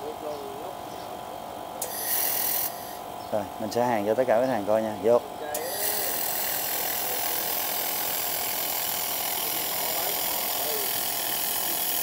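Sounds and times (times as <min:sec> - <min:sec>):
faint constant whine: 0:00.0 - 0:12.0
laser welder hissing: 0:01.8 - 0:03.0, 0:05.5 - 0:12.0.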